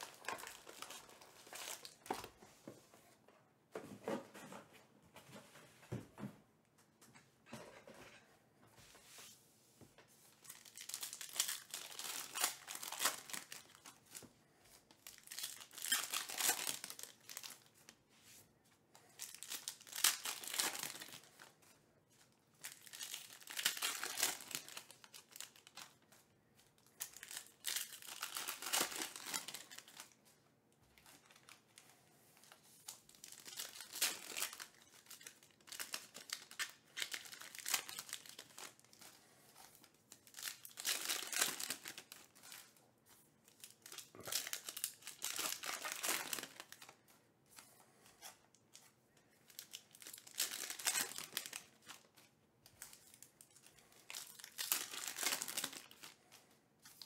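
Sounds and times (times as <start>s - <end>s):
foil wrappers tearing and crinkling: 10.5s - 13.9s, 15.0s - 17.7s, 19.2s - 21.4s, 22.6s - 25.9s, 27.0s - 30.1s, 32.9s - 39.0s, 40.2s - 42.6s, 43.5s - 46.9s, 49.5s - 52.1s, 52.8s - 56.2s.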